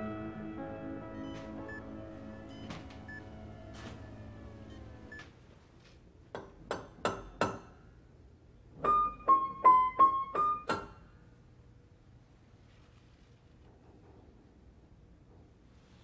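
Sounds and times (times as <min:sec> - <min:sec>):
piano notes: 0:00.0 - 0:05.2, 0:08.8 - 0:10.9.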